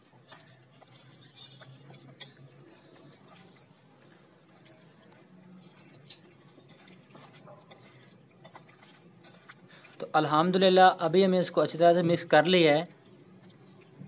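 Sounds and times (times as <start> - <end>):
hand kneading wet meat: 0.0 - 14.0.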